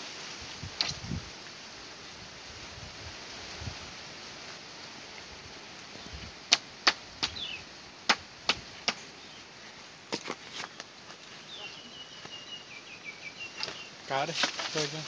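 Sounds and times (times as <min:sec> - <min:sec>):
steady outdoor hiss: 0:00.0 - 0:15.0
bamboo pole knocking: 0:08.1 - 0:09.0.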